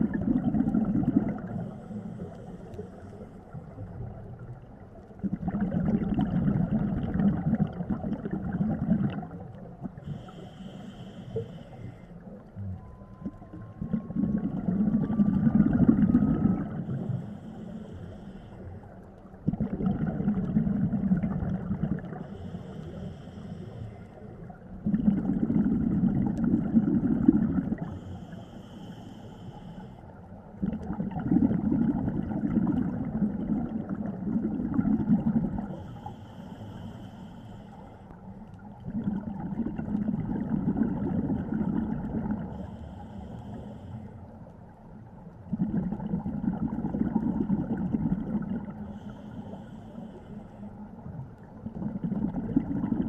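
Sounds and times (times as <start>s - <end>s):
exhaled bubbles rushing: 0.0s - 1.8s, 3.5s - 10.3s, 12.7s - 17.2s, 19.4s - 22.4s, 24.7s - 28.0s, 30.6s - 35.9s, 38.6s - 42.6s, 45.4s - 49.0s, 51.0s - 53.0s.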